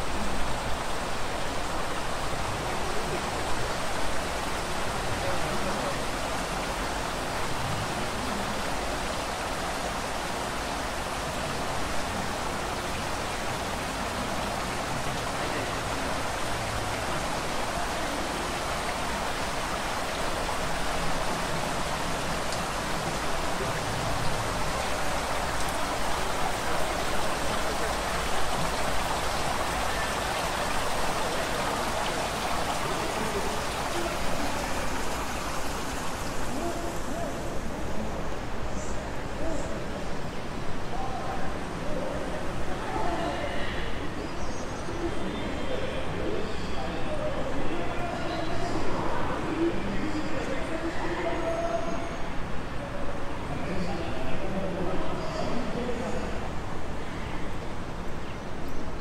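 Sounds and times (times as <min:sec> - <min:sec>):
fountain water splashing: 0:00.0 - 0:43.6.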